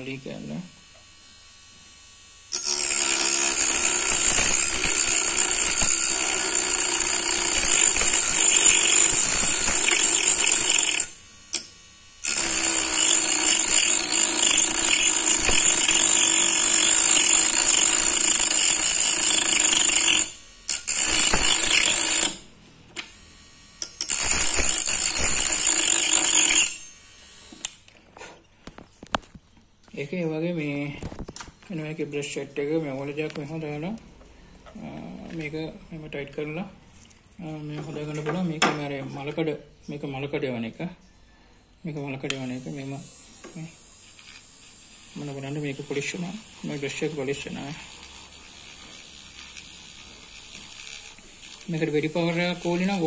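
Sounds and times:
rotary tool cutting wood: 0:00.4 - 0:22.4, 0:23.0 - 0:28.3, 0:42.3 - 0:53.0.

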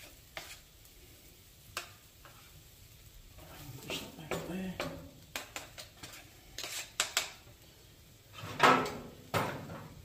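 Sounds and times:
metal spatula clanking on griddle: 0:03.9 - 0:07.4, 0:08.4 - 0:10.0.

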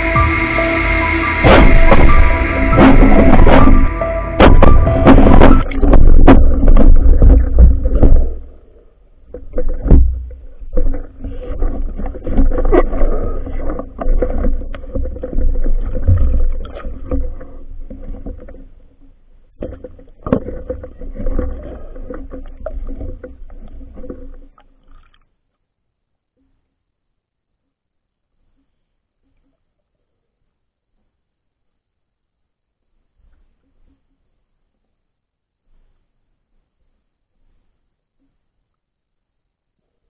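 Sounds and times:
underwater rumble: 0:00.0 - 0:25.2
knocks and scrapes on housing: 0:01.4 - 0:08.5.

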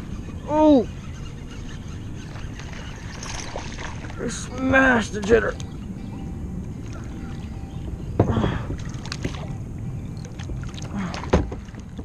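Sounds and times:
water around kayak: 0:00.0 - 0:12.0.

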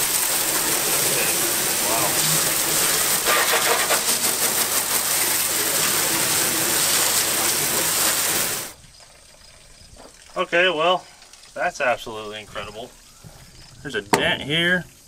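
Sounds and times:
water spray hitting steel bed: 0:00.0 - 0:09.0, 0:13.9 - 0:14.9.

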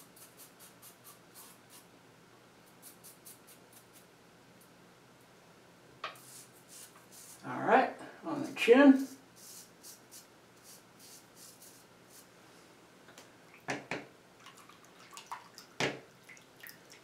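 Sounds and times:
faint running water: 0:13.5 - 0:17.0.

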